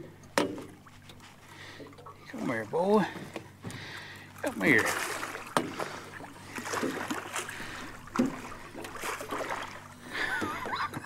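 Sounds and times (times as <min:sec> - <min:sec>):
water splashing and sloshing: 0:00.0 - 0:11.0
thump against boat: 0:00.4 - 0:00.8, 0:05.0 - 0:05.9, 0:08.1 - 0:09.4.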